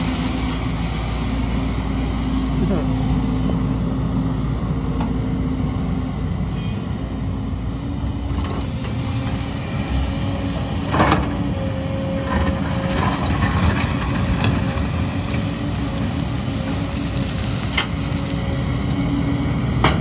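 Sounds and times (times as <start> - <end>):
excavator diesel engine humming: 0.0 - 20.0.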